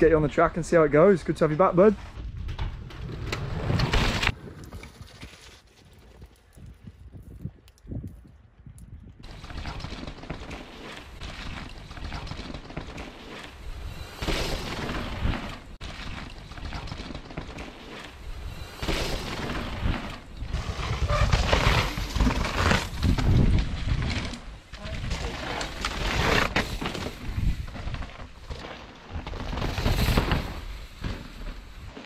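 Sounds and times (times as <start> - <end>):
mountain bikes rattling over rocks: 9.2 - 32.0.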